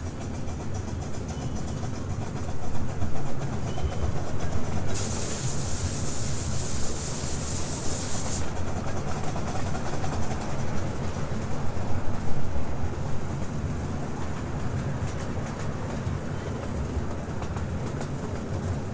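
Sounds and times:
miniature train rumbling: 0:00.0 - 0:18.9
loud high hiss: 0:04.9 - 0:08.5.

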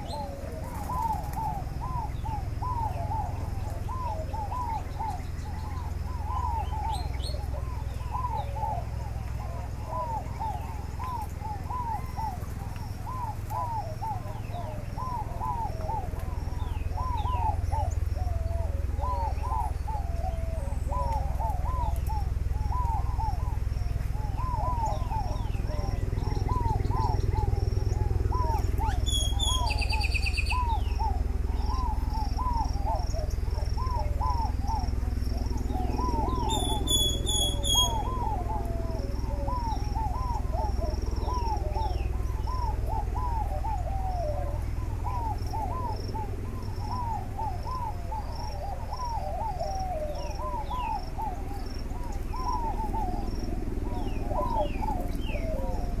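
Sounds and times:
birds calling: 0:00.0 - 0:56.0
high chirping bursts: 0:35.9 - 0:38.3.

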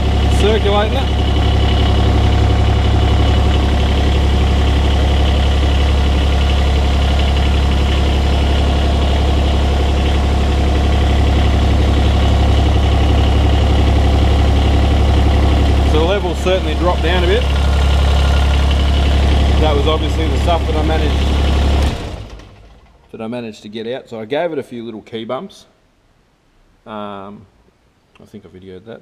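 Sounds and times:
diesel engine idling: 0:00.0 - 0:23.1.

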